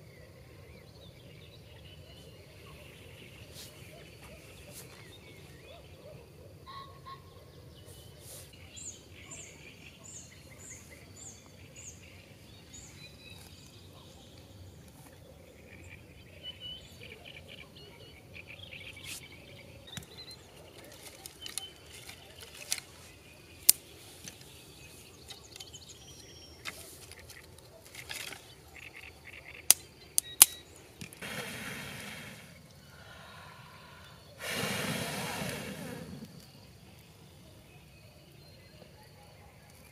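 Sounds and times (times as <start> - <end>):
small birds chirping: 0.0 - 39.9
sharp snaps: 29.7 - 32.8
breath blown onto embers: 31.2 - 36.7.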